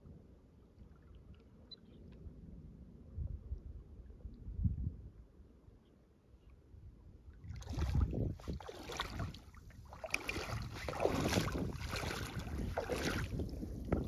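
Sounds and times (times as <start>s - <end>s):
wind gusting across microphone: 7.4s - 14.0s.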